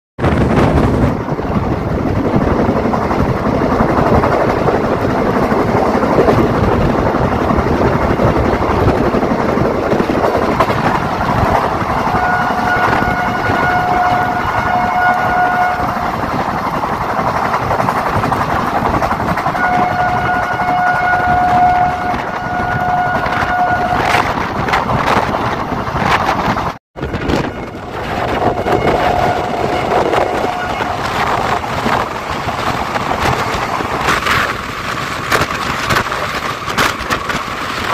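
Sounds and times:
train wheels on rail: 0:00.2 - 0:37.9
locomotive horn blasts: 0:12.0 - 0:16.2, 0:19.5 - 0:24.3, 0:27.0 - 0:32.0.

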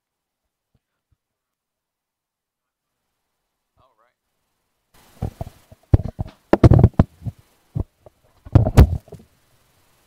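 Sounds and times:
dull handling thumps and knocks: 0:05.2 - 0:09.2.

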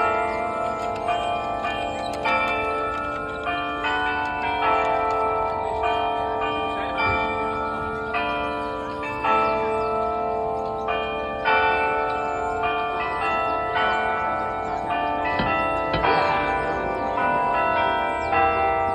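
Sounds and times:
clock bells playing a melody: 0:00.0 - 0:18.9.

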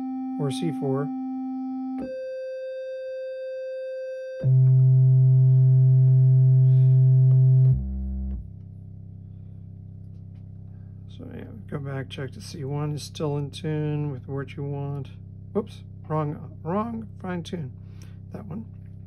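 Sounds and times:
oscillator test tones: 0:00.0 - 0:08.7.

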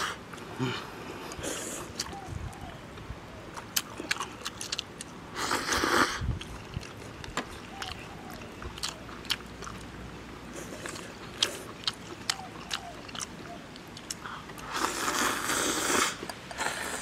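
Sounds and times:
chewing clicks and lip smacks: 0:03.5 - 0:05.2, 0:06.4 - 0:10.0, 0:10.6 - 0:14.7
slurping noodles: 0:05.4 - 0:06.4, 0:14.6 - 0:17.0.

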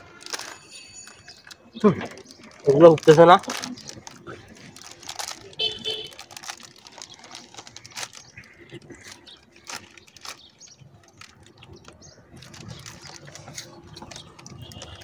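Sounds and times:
plastic chips packet crinkling: 0:00.0 - 0:15.0.

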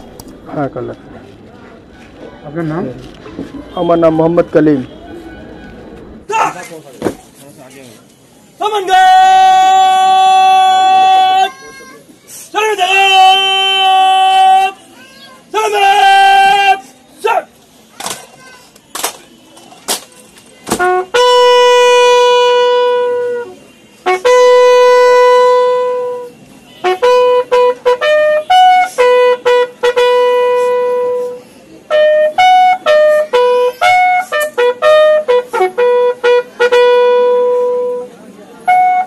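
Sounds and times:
bugle call: 0:20.7 - 0:38.1.

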